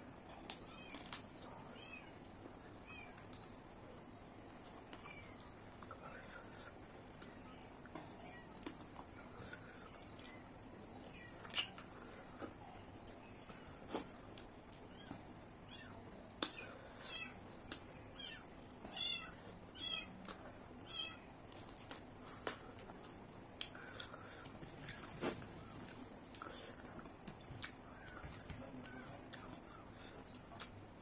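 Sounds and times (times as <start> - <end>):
wet eating and lip smacks: 11.4 - 13.2, 21.5 - 29.5.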